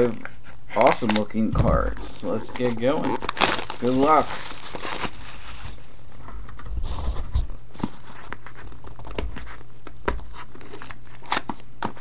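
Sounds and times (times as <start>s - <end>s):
wrapping torn and crinkled: 0.8s - 1.3s, 1.9s - 5.8s, 10.5s - 11.6s.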